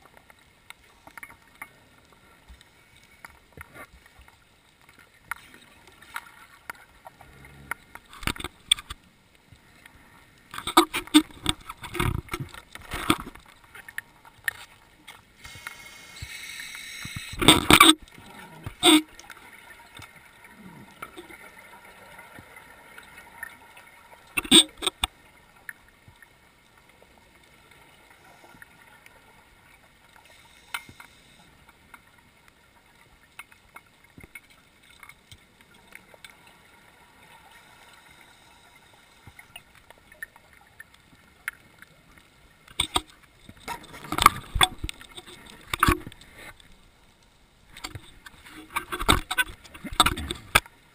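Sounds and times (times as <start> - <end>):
steady hiss: 15.2 - 17.8, 27.0 - 32.2, 36.7 - 39.9.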